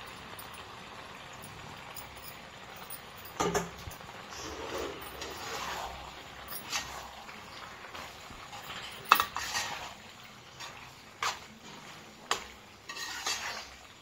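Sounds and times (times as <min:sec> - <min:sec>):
spoon clinking on pan: 0:01.5 - 0:04.1, 0:08.5 - 0:09.7
spoon scraping pan: 0:03.3 - 0:14.0.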